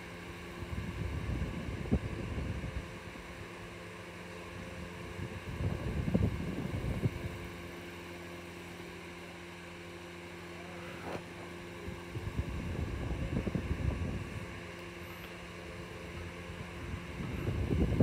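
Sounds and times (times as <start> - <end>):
low electrical hum: 0.0 - 18.0
low rumbling on microphone: 0.6 - 3.2, 4.6 - 7.6, 11.1 - 18.0.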